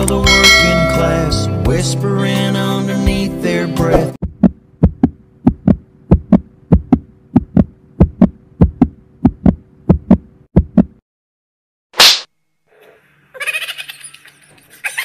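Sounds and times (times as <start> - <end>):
heartbeat thumps: 4.2 - 11.0.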